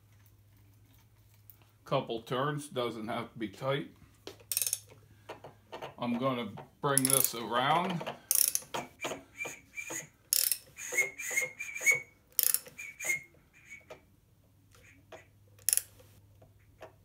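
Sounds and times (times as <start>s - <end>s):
ratchet wrench clicks: 4.5s - 4.9s, 7.0s - 7.4s, 8.3s - 8.8s, 10.3s - 10.7s, 12.4s - 12.7s, 15.6s - 16.0s
whistle chirps: 9.0s - 10.1s, 10.8s - 13.9s.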